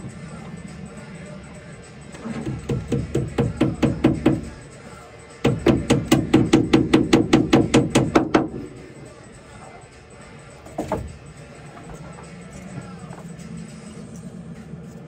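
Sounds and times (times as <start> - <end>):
hammer blows on wood: 2.2 - 4.6, 5.4 - 8.7.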